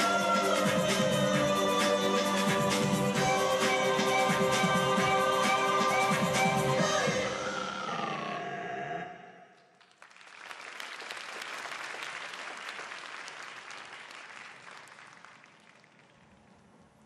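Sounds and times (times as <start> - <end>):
audience applause: 9.7 - 16.2.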